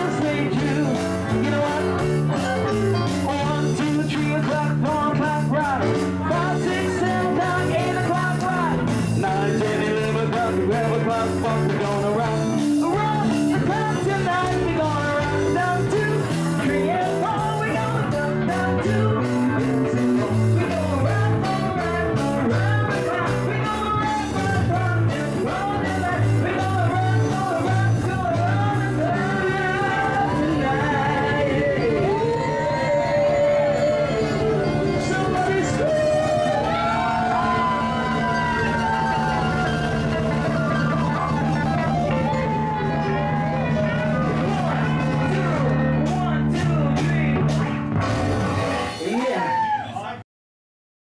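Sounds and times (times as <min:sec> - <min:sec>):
man singing into microphone: 0:00.0 - 0:38.4
electric guitar: 0:00.0 - 0:49.4
bass guitar: 0:00.0 - 0:50.1
steady beat: 0:32.0 - 0:48.5.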